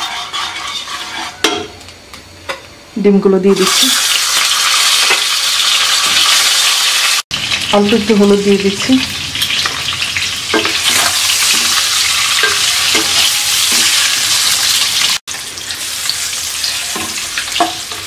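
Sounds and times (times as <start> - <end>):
wooden spatula scraping pan: 0.0 - 1.8
eggs sizzling in oil: 3.6 - 18.0.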